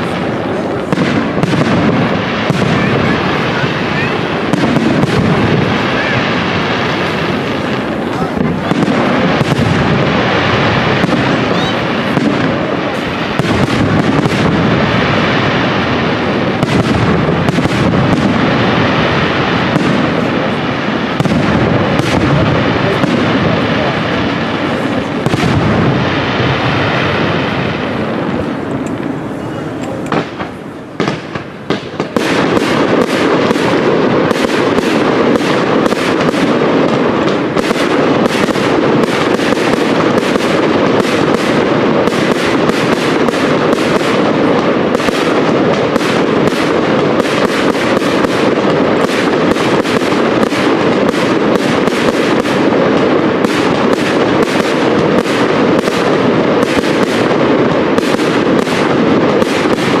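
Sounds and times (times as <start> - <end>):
fireworks launching and bursting: 0.0 - 60.0.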